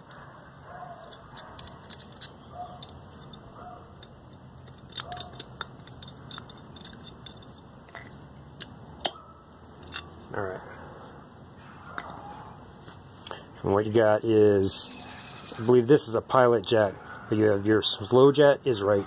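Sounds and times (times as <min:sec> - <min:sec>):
small metal parts being handled: 0:00.9 - 0:08.8, 0:09.7 - 0:10.4
screwdriver clicks and metal taps: 0:01.0 - 0:09.2
bird calls: 0:02.2 - 0:04.0.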